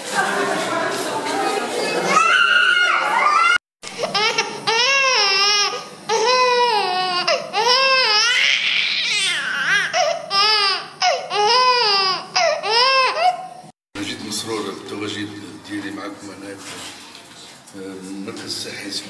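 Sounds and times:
infant crying: 4.0s - 13.6s.

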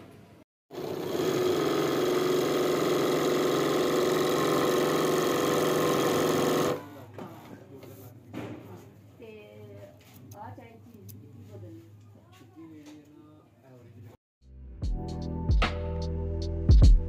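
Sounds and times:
embroidery sewing machine running: 0.7s - 6.8s.

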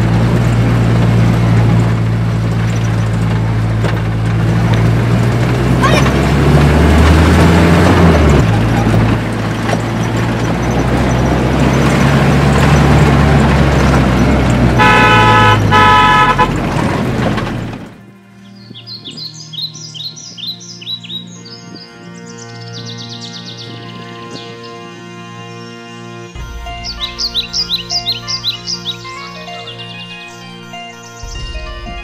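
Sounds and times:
vehicle engine drone: 0.0s - 32.0s
vehicle horn: 14.2s - 17.4s.

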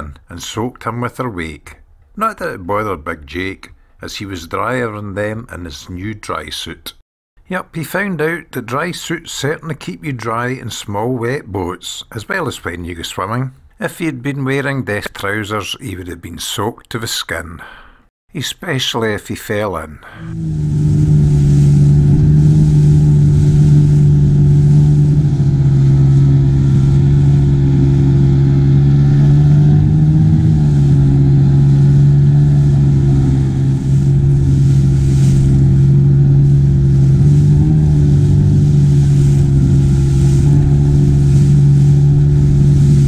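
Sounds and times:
outboard motor running: 20.2s - 43.0s
water splashing against hull: 20.2s - 43.0s.

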